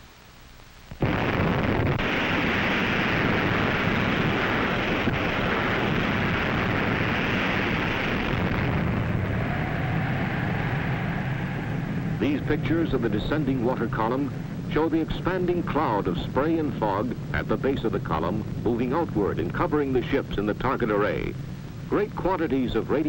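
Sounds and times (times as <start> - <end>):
bomb blast rumble: 1.0 - 23.0.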